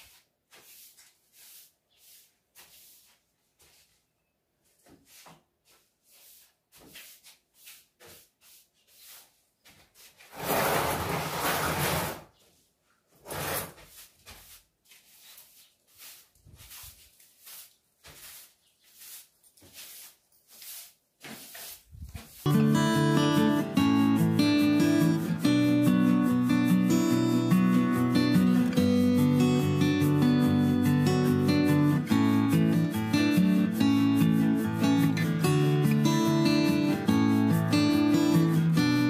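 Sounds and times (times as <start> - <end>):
broom sweeping cement floor: 0.0 - 39.0
sofa scraping across floor: 10.1 - 12.3, 13.2 - 14.7.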